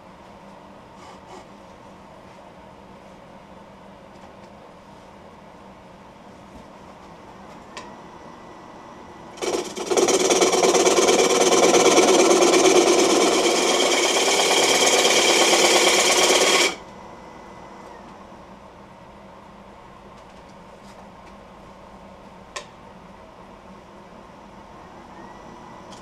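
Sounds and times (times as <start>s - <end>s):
lathe running faintly: 6.5s - 19.8s
gouge cutting wood on lathe: 9.3s - 16.8s.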